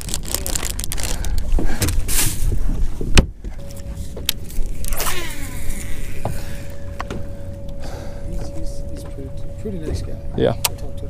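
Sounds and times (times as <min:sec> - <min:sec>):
fishing reel spool whirring: 0:04.4 - 0:07.7.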